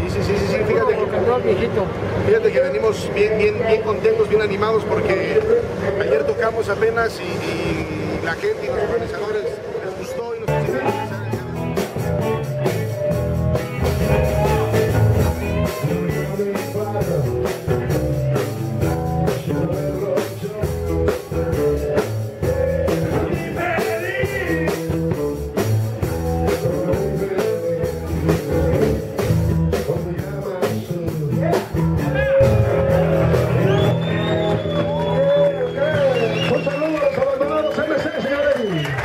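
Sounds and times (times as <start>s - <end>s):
electric guitar: 10.5s - 37.6s
drum kit: 10.5s - 38.0s.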